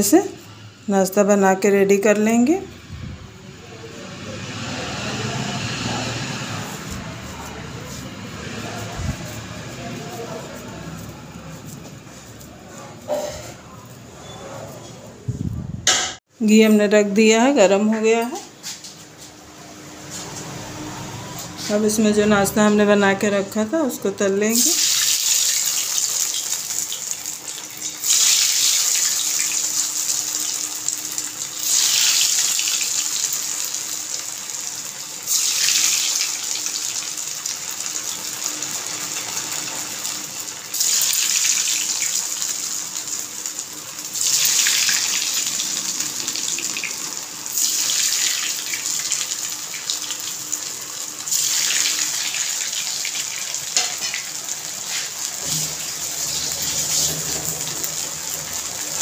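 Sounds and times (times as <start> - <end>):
patty sizzling in hot oil: 4.0 - 14.0, 24.5 - 59.0.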